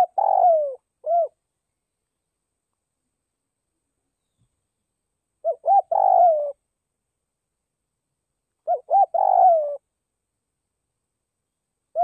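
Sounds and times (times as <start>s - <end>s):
dove cooing: 0.0s - 1.4s, 5.4s - 6.6s, 8.6s - 9.9s.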